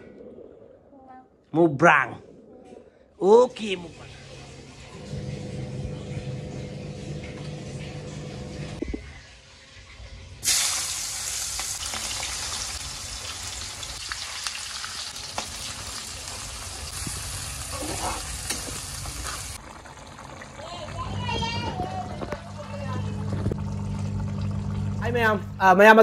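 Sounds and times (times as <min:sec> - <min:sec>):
onions sizzling in hot oil: 0:10.4 - 0:19.6.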